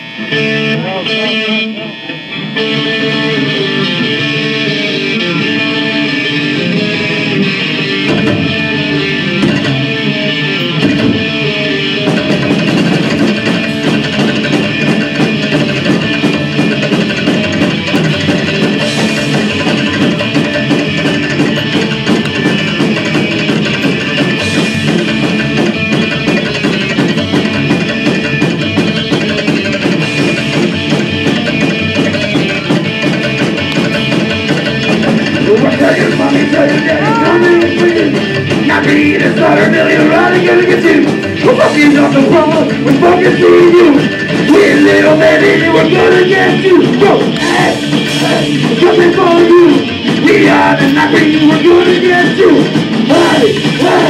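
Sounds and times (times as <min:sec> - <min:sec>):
driving drum beat: 0:00.0 - 0:54.0
electric guitar: 0:00.0 - 0:54.0
upright bass: 0:02.6 - 0:54.0.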